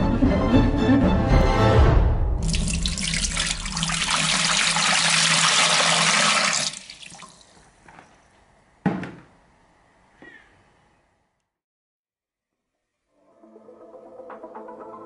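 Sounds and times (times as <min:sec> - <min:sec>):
tap water splashing into glass tank: 0:02.4 - 0:07.5
water drips: 0:02.4 - 0:07.6.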